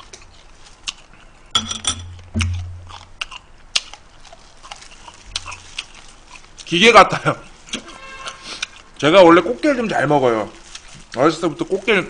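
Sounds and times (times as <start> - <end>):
low hummed sounds: 1.5 - 3.4
chewing crab shell crunches: 2.0 - 6.8.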